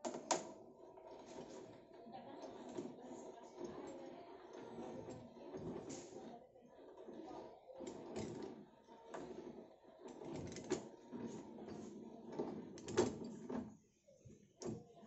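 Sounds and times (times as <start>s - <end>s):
metal dies scraping on thread: 0.8s - 13.7s.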